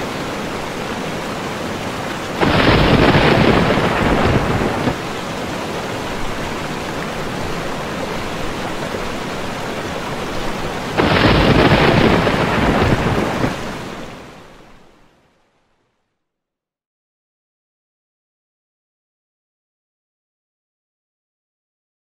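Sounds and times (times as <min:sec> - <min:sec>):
heavy rain: 0:00.0 - 0:15.7
thunder rolling: 0:02.4 - 0:05.1, 0:10.9 - 0:14.1.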